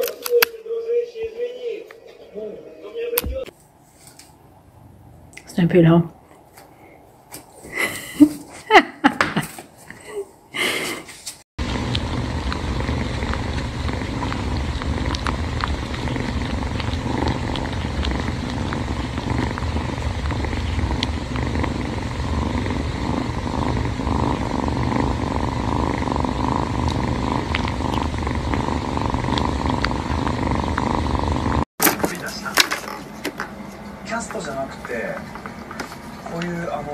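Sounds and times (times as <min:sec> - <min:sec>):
kitten purring: 0:11.6 - 0:31.7.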